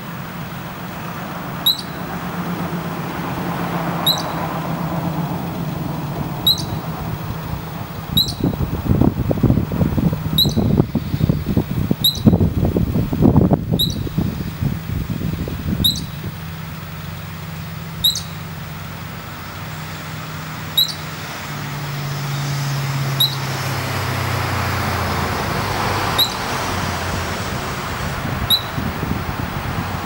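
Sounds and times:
low traffic hum: 0.0s - 30.0s
squirrel alarm chirps: 1.6s - 2.1s, 4.0s - 4.4s, 6.4s - 6.8s, 8.1s - 8.6s, 10.3s - 12.4s, 13.7s - 14.2s, 15.7s - 18.6s, 20.7s - 21.2s, 23.1s - 23.5s, 26.2s - 26.5s, 28.5s - 28.8s.

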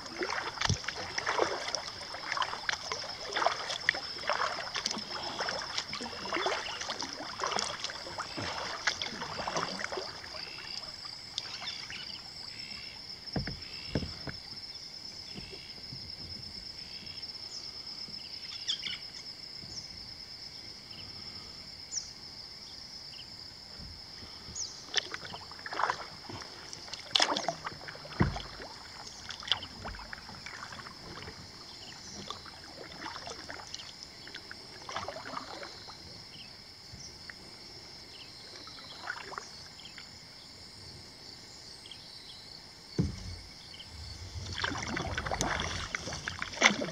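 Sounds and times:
kayak paddle strokes in water: 0.0s - 17.2s, 23.7s - 37.6s, 42.9s - 46.9s
low knocks: 43.0s - 46.4s.

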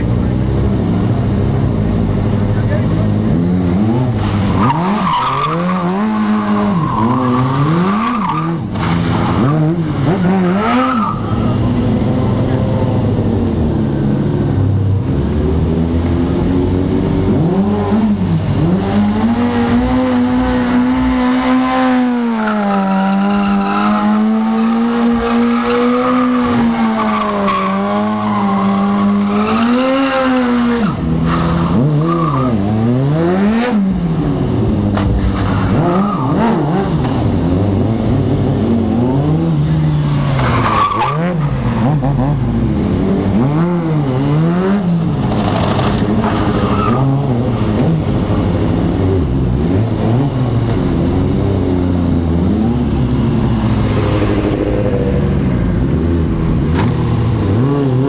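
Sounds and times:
car engine revving: 0.0s - 58.0s
tires squealing: 3.8s - 11.8s, 17.4s - 33.8s, 34.9s - 37.2s, 38.9s - 42.6s, 43.3s - 48.4s.

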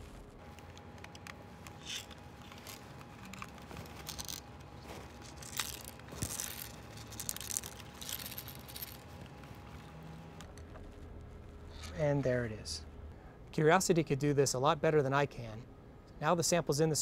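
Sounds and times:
plastic model rustling: 0.0s - 9.9s
metal balls rattling: 1.7s - 9.2s.

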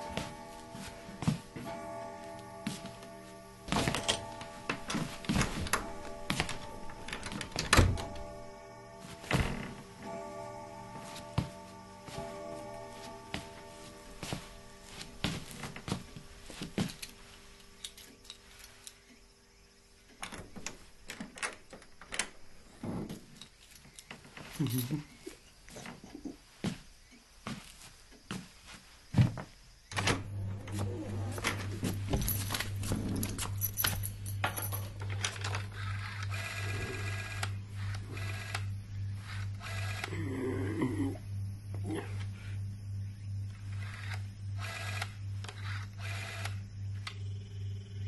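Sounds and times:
footsteps on wooden floor: 0.0s - 8.2s, 9.0s - 10.0s, 10.9s - 17.2s, 26.6s - 29.6s
steady buzzing tone: 0.0s - 16.5s
key rattling in door lock: 32.1s - 36.3s.

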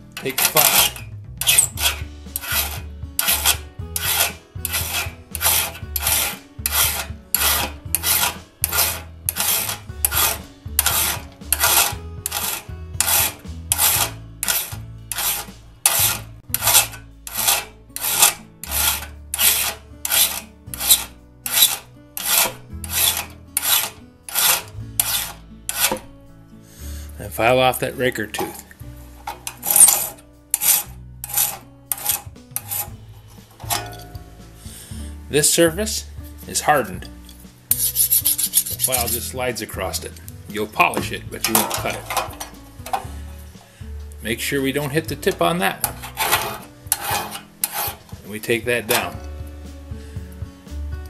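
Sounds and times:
hand file rasping steel: 0.2s - 26.1s, 28.3s - 34.6s, 37.7s - 40.0s, 40.6s - 43.5s, 44.7s - 49.2s.

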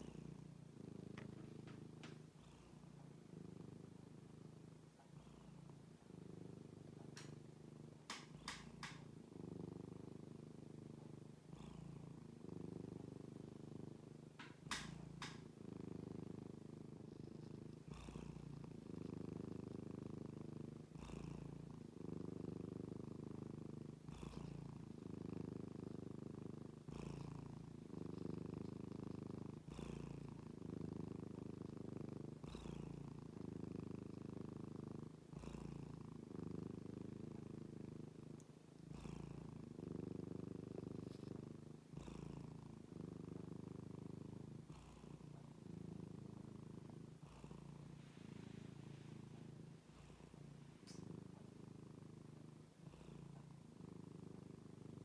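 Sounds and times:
cat purring: 0.0s - 55.0s.

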